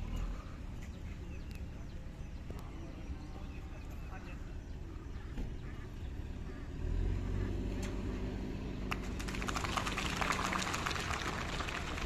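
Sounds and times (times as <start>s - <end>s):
crowd clapping: 8.9s - 12.0s.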